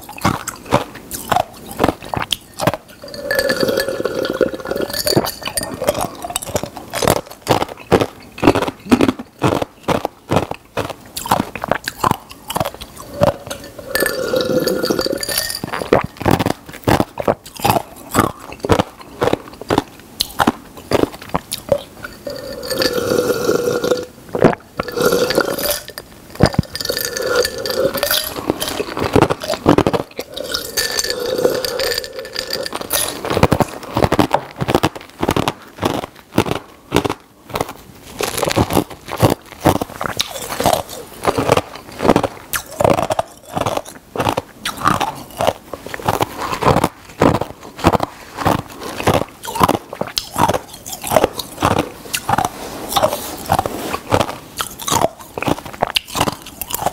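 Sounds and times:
person gulping a drink: 0:00.0 - 0:56.9
glass clinking: 0:02.3 - 0:06.7, 0:13.0 - 0:16.3, 0:22.0 - 0:24.1, 0:24.8 - 0:33.7
mouth clicks: 0:38.3 - 0:56.9.

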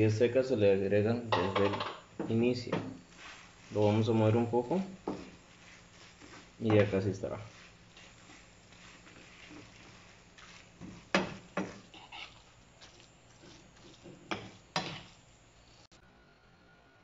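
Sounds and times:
wooden spoon scraping a pan: 0:01.6 - 0:15.3.

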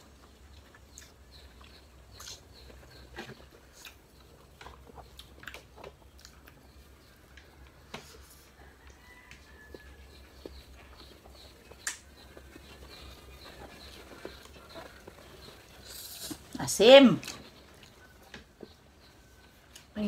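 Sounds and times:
chewing and lip smacks: 0:00.2 - 0:07.7, 0:08.9 - 0:16.4.

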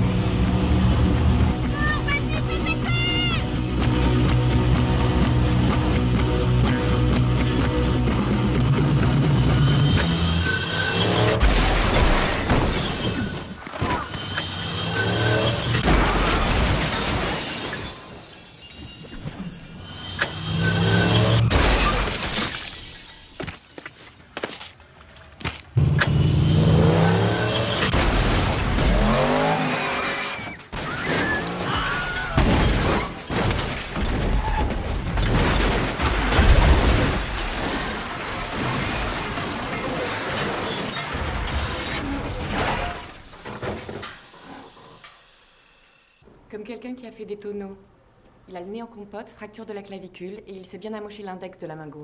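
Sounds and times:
film music: 0:00.0 - 0:11.4
crunching metal: 0:09.9 - 0:44.2
glass shattering: 0:15.0 - 0:24.2, 0:35.2 - 0:43.0.

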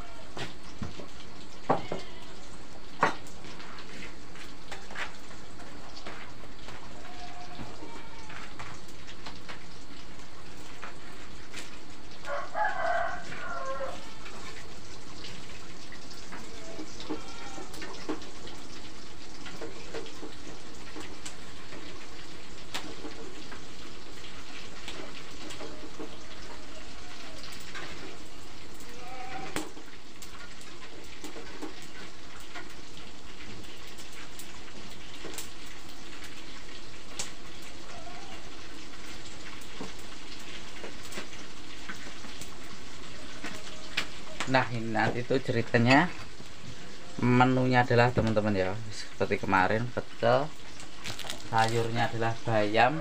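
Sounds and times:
rooster crowing: 0:12.2 - 0:14.6, 0:26.2 - 0:27.6.

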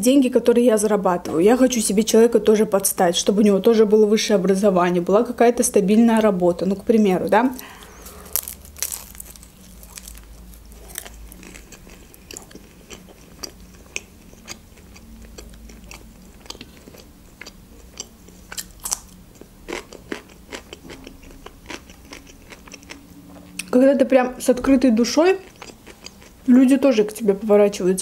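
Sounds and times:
biting into a wrap: 0:07.6 - 0:23.0
person chewing food: 0:07.6 - 0:23.7, 0:25.4 - 0:26.5.

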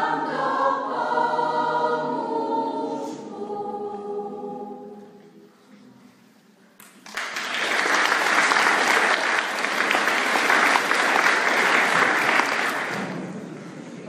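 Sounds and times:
audience applause: 0:06.8 - 0:13.2.

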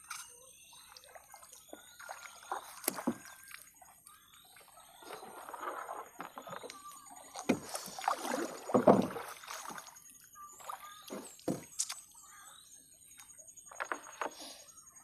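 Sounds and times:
water splashing and dripping: 0:00.7 - 0:12.0
knocks and thuds against hull: 0:08.5 - 0:09.4.

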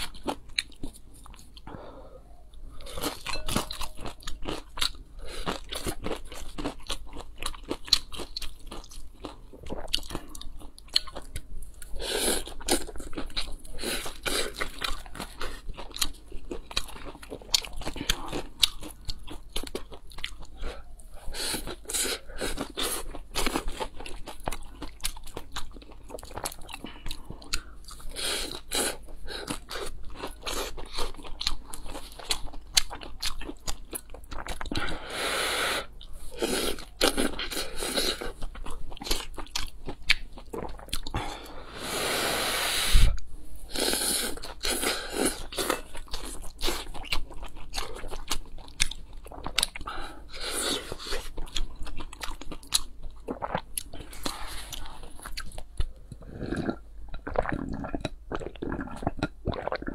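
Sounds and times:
crunchy chewing: 0:02.6 - 0:35.0, 0:35.8 - 0:41.6, 0:43.7 - 0:59.9.

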